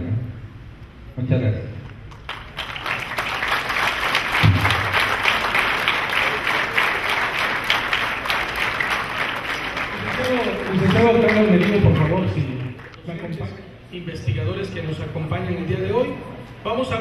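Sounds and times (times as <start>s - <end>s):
audience applauding: 2.1s - 13.0s.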